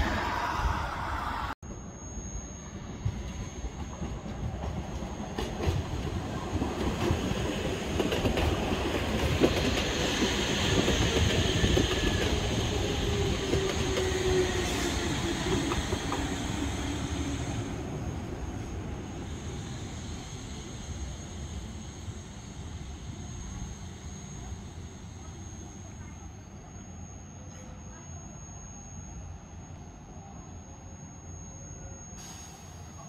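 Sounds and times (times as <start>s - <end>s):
train motor whine: 0.0s - 7.9s.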